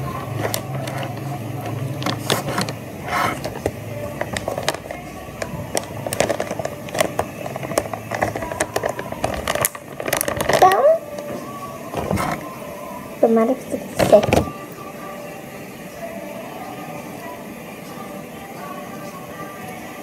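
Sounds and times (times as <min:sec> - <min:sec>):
low steady hum: 0:00.0 - 0:20.0
plastic pouch crinkling: 0:00.4 - 0:11.0.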